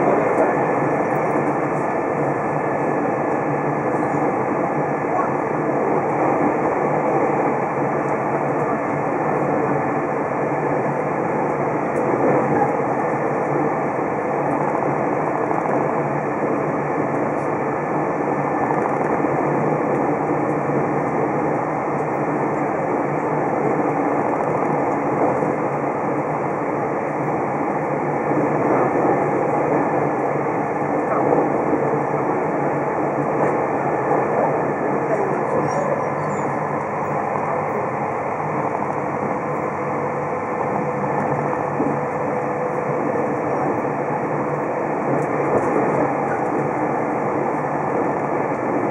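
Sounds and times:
electric train running at speed: 0.0 - 48.9.

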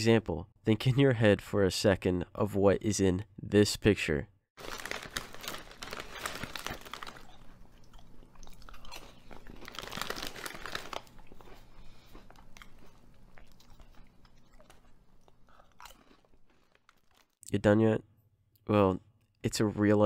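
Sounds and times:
person chewing crunchy chips: 4.6 - 17.4.

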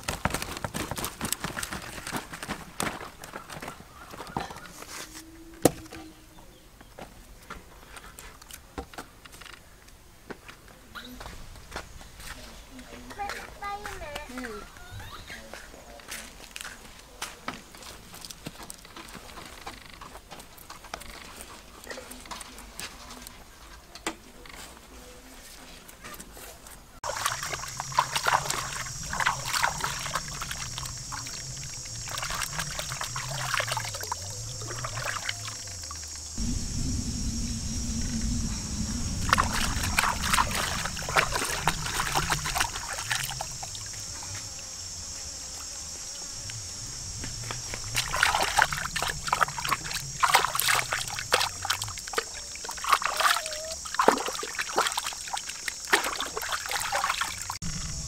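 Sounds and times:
hands splashing in water: 27.0 - 35.9, 39.2 - 43.8, 47.9 - 57.5
high-pitched drone: 36.4 - 43.0.

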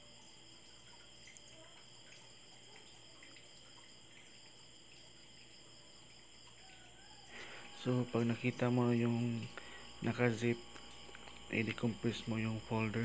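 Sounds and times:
steady high-pitched whine: 4.1 - 13.0.

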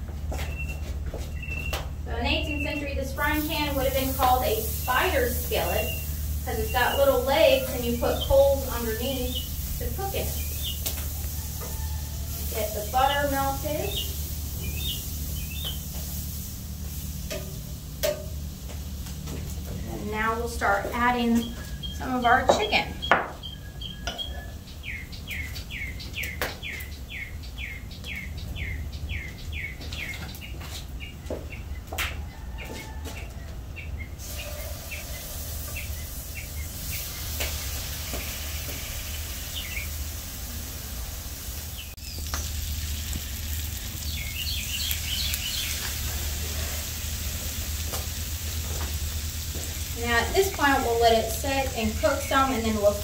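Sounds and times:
songbird chirping: 0.3 - 16.0, 19.7 - 37.4, 41.7 - 46.1
chicken sizzling in butter: 3.2 - 18.6, 34.2 - 52.3.

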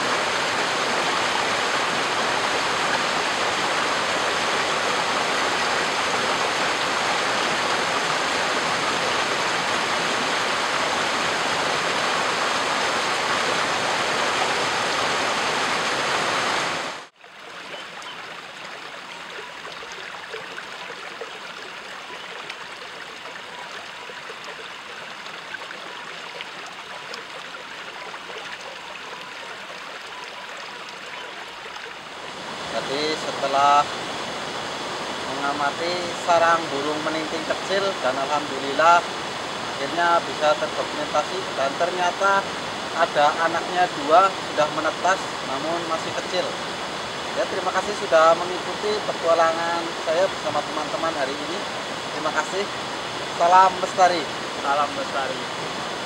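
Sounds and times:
river rushing: 0.0 - 56.0.

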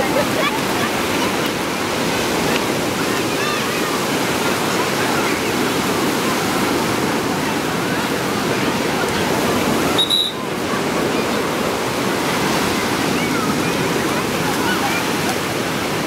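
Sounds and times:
faint voices of bathers: 0.0 - 16.0
ocean surf breaking: 0.0 - 16.0
short high beep: 10.0 - 10.4.

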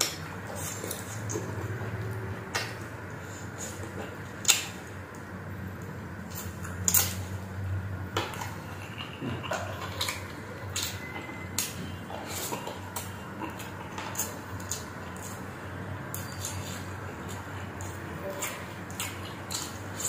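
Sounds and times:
person chewing: 0.0 - 20.0
lip smacks: 3.6 - 4.9.

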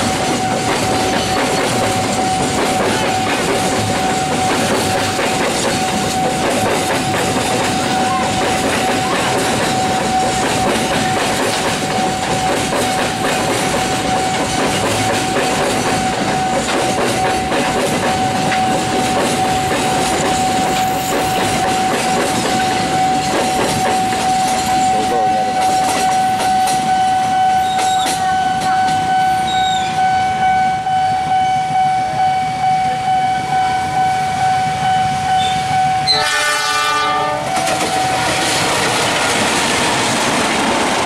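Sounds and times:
train wheels clattering: 0.0 - 26.9, 36.1 - 41.0.

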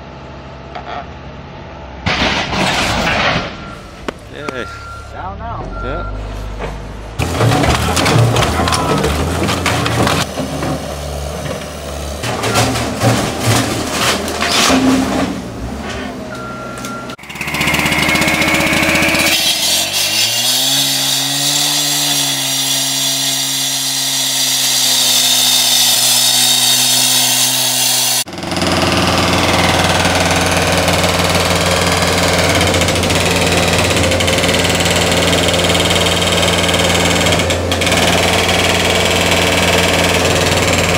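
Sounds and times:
diesel loader engine running: 0.0 - 20.7, 28.1 - 40.9
cut-off saw whining: 16.3 - 40.9.

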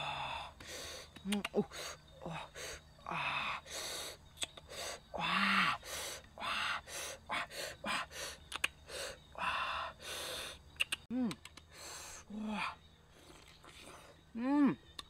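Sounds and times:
mouth clicks: 0.6 - 1.9, 3.7 - 5.0, 8.2 - 9.0, 10.8 - 11.8, 13.2 - 14.1.

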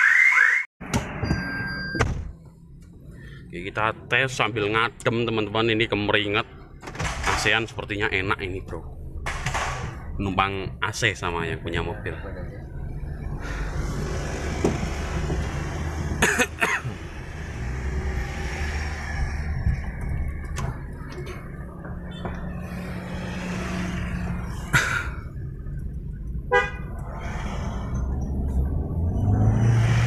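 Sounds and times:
road and engine rumble: 0.8 - 30.0
car horn toot: 26.5 - 27.0.

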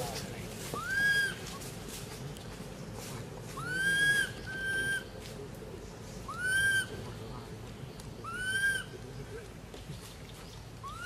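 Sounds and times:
whistle-like animal calls: 3.6 - 5.1, 6.3 - 6.9.

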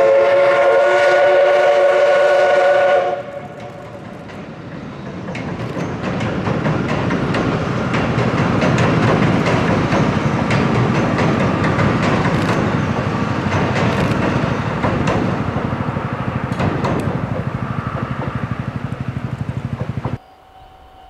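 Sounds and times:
train rumbling past: 0.0 - 21.0
wheels clicking over rail joints: 3.2 - 20.2.

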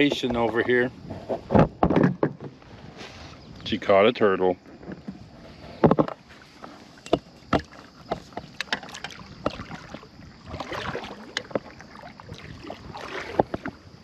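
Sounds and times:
short hissing rustle: 2.7 - 3.5.

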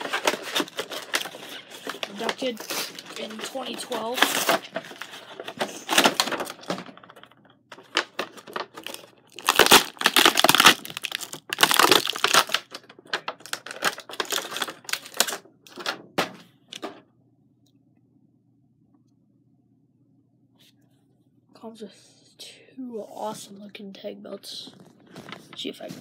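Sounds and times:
packaging tearing and crinkling: 0.0 - 6.8, 7.7 - 15.8.

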